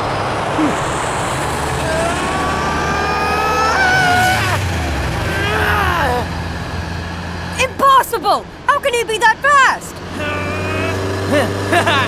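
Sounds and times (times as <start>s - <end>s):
cartoon engine whine rising: 0.3s - 6.4s.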